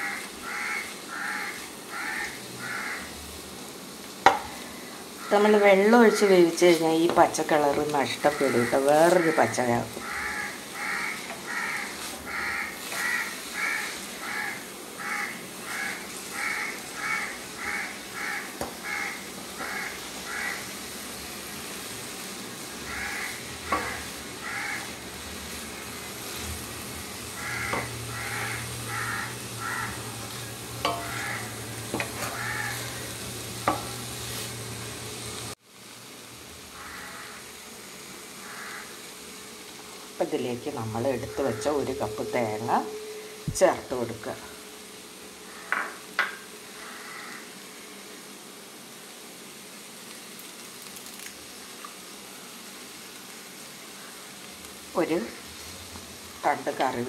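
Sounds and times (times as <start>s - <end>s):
crow cawing: 0.0s - 3.1s, 8.2s - 20.7s, 22.8s - 25.0s, 27.4s - 30.2s, 30.9s - 33.1s, 36.7s - 37.4s, 38.4s - 39.0s, 45.5s - 46.0s, 46.8s - 47.6s
beans sizzling in a pan: 0.0s - 57.0s
wooden spatula scraping: 6.0s - 14.4s, 23.0s - 34.7s.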